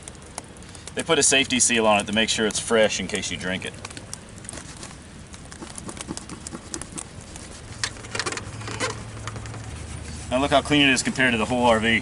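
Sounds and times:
small scuffs and clicks: 0:05.6 - 0:10.3
cloth rag rubbing a panel: 0:05.8 - 0:12.0.

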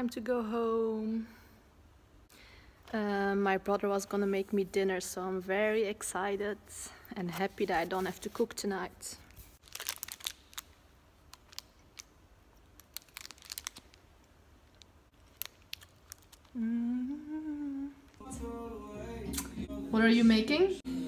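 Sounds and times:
wrapper crinkling and tearing: 0:09.3 - 0:16.6
person humming: 0:16.5 - 0:19.9.

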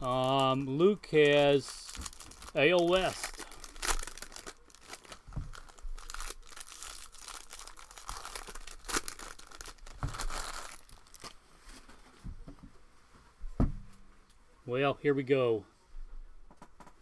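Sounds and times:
foil wrapper tearing and crinkling: 0:00.0 - 0:11.4.

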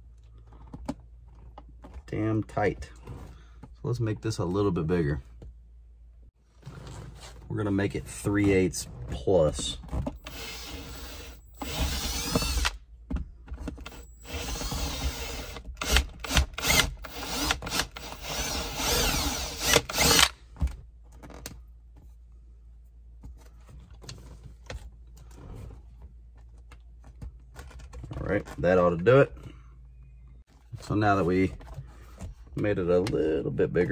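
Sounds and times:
power drill whining: 0:10.2 - 0:12.8, 0:13.8 - 0:20.4.

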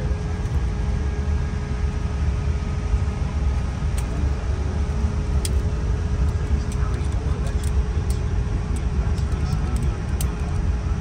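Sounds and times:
aircraft cabin rumble and hiss: 0:00.0 - 0:11.0
faint steady hum: 0:00.0 - 0:11.0.

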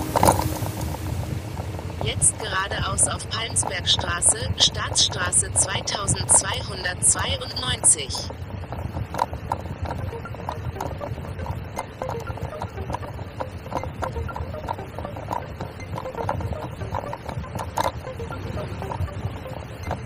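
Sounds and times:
wind and tyre rumble: 0:08.3 - 0:11.8.

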